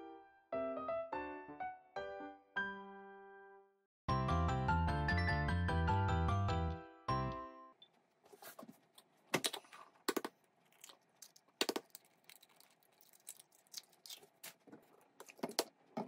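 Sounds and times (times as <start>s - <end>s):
eggshells cracking: 10.1s - 15.8s.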